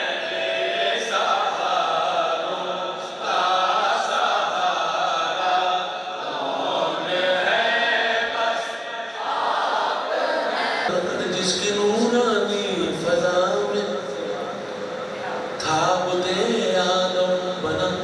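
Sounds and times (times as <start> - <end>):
man chanting into a microphone: 10.9 - 14.6, 15.6 - 18.0.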